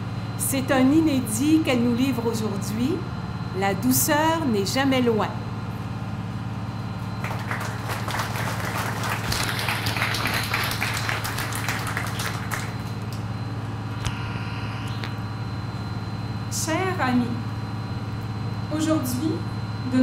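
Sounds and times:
steady low hum: 0.0 - 20.0
audience applauding: 7.2 - 13.3.

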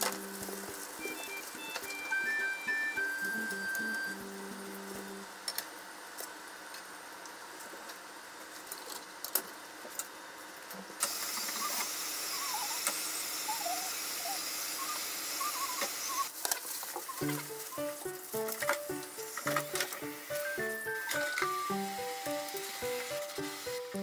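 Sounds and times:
faint wavering high tones: 0.7 - 5.3
oil sizzling in frying pan: 16.8 - 24.0
high hiss: 17.1 - 24.0.

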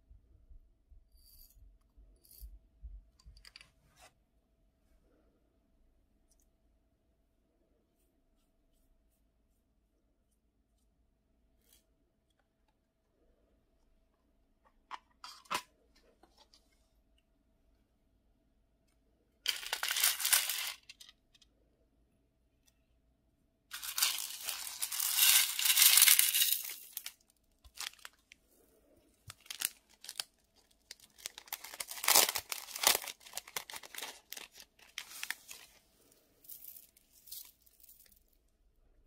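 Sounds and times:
plastic packets rustling: 19.5 - 21.1, 23.7 - 28.4, 29.2 - 35.8.

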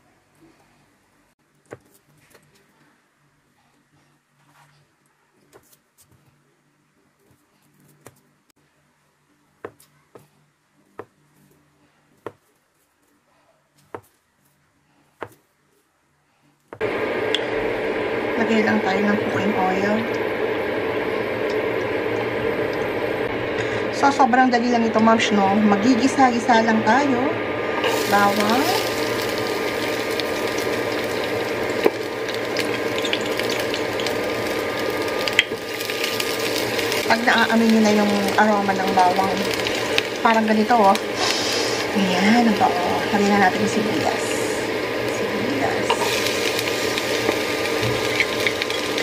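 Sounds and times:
garlic sizzling in oil: 27.7 - 49.0
loud steady noise: 33.7 - 49.0.

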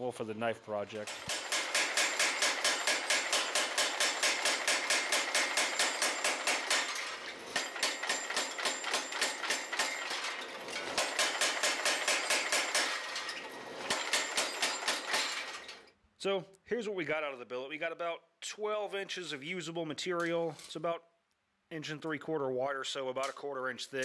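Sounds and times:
power hammer striking hot metal: 1.0 - 13.1, 13.7 - 15.3.

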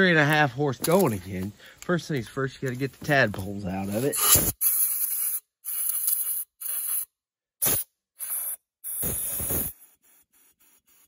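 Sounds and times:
compressed air hissing bursts: 4.2 - 11.0.

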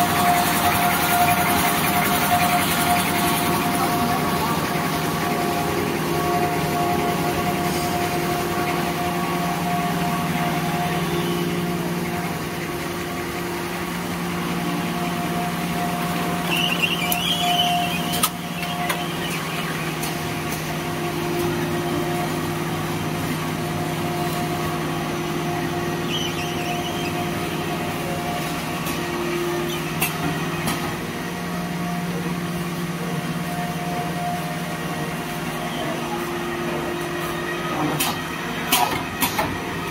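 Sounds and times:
packing machine hum: 0.0 - 39.9.

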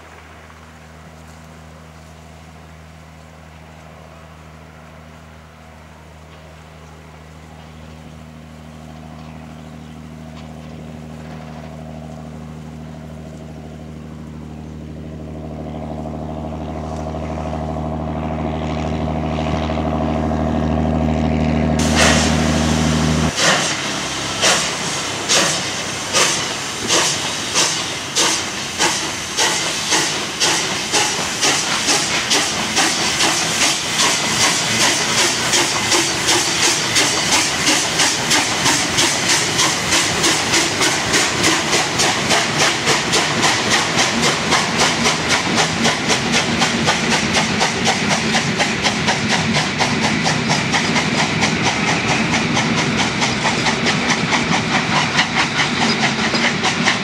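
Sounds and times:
diesel railcar engine running: 0.0 - 57.0
steam locomotive exhaust chuffs: 0.0 - 57.0
steam hissing from cylinders: 21.8 - 57.0.

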